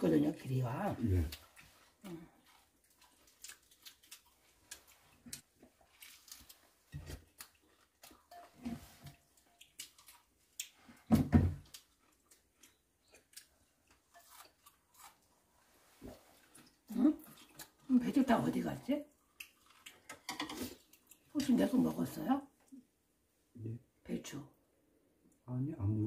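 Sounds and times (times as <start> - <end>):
chewing: 1.0 - 17.9, 19.1 - 21.4
spoons scraping bowls: 8.2 - 9.1, 20.1 - 20.8.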